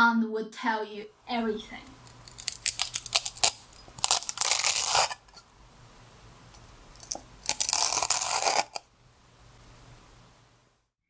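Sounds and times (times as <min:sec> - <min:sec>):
knife crunching through fried rolls: 0:02.0 - 0:05.4, 0:07.0 - 0:08.8.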